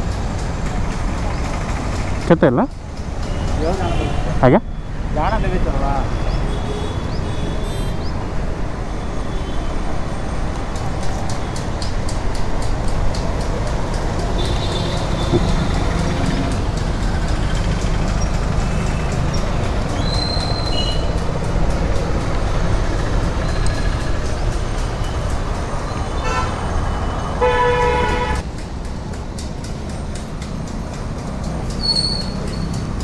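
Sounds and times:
traffic rumble: 0.0 - 33.0
vehicle horn honking: 3.4 - 4.4, 26.2 - 26.6, 27.4 - 28.4.

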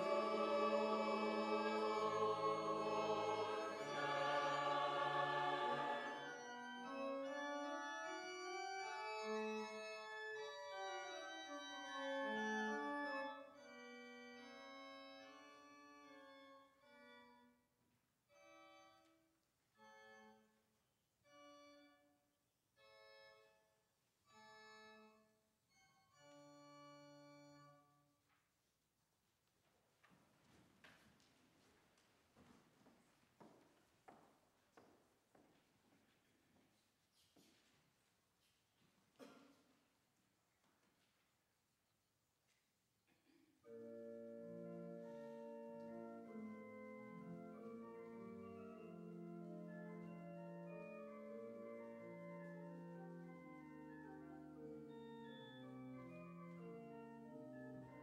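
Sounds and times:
choir singing: 0.0 - 7.0
church organ chords: 0.0 - 17.6, 18.3 - 20.6, 21.2 - 22.1, 22.8 - 23.6, 24.3 - 28.0, 43.6 - 58.0.

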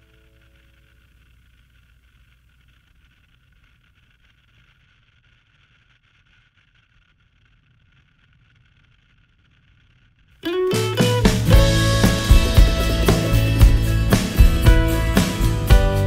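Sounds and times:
faint hiss: 0.0 - 16.0.

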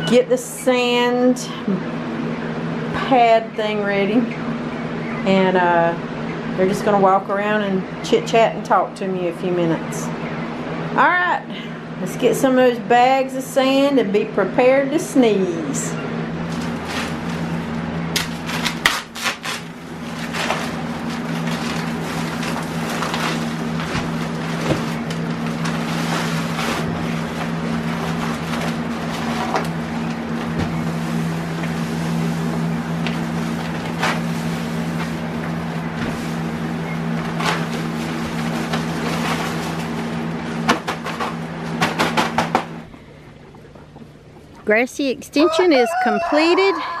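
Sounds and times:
box fan humming: 0.0 - 47.0
bag crinkling: 16.5 - 29.6
paper bag tearing and crinkling: 18.2 - 24.7.

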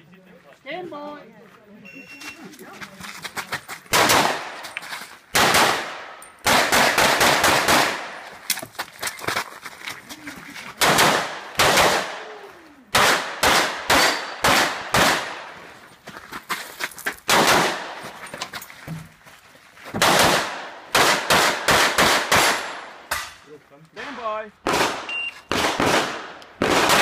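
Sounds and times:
pistol shots: 3.9 - 4.6, 5.3 - 8.3, 10.8 - 12.3, 12.9 - 15.6, 17.3 - 18.0, 20.0 - 23.4, 24.6 - 27.0.

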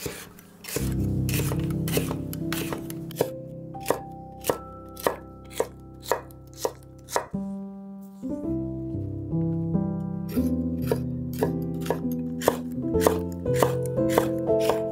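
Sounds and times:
knife slicing on wooden board: 0.0 - 7.3, 10.3 - 14.8
soft background music: 0.0 - 14.9.

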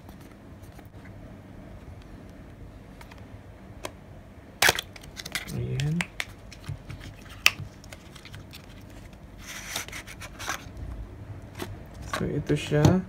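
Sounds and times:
cardboard flaps rustling and scraping: 6.6 - 10.8.

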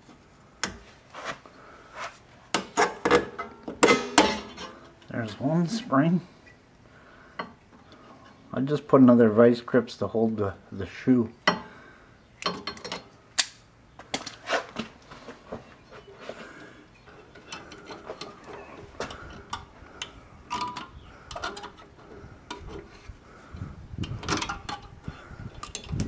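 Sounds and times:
metallic clicks and scraping: 17.0 - 23.1, 24.0 - 26.0.

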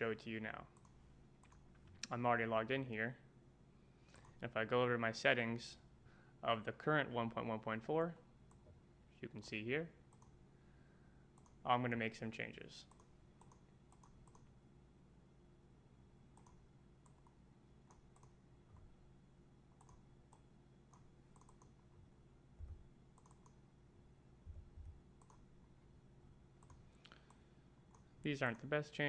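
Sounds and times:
steady low hum: 0.0 - 29.0
faint computer mouse clicks: 11.4 - 11.6, 12.8 - 14.5, 16.4 - 18.4, 19.8 - 21.8, 23.2 - 23.6, 25.2 - 25.4, 26.6 - 28.1
soft low thumps: 22.6 - 22.9, 24.4 - 25.0.

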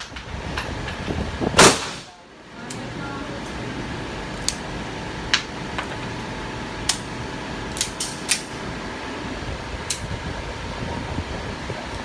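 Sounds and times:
pistol shots indoors: 1.6 - 2.2.

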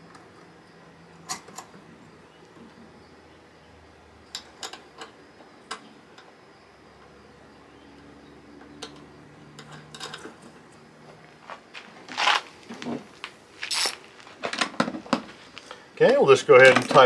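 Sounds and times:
metal hardware clicking and clinking: 4.2 - 6.3, 8.6 - 10.5
scraping rustles: 10.1 - 15.8.

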